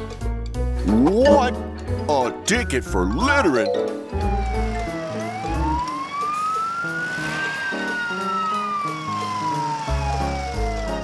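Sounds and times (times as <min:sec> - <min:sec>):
background music with bass line: 0:00.0 - 0:05.9
police car siren wailing: 0:02.4 - 0:11.0.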